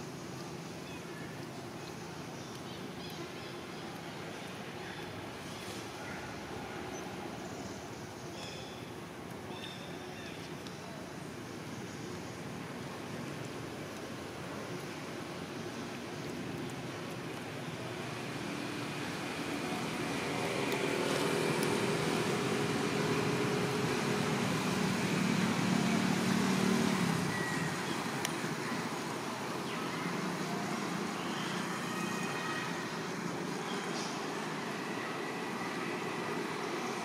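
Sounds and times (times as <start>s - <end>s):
road noise: 0.0s - 37.0s
vehicle engine hum: 15.0s - 37.0s.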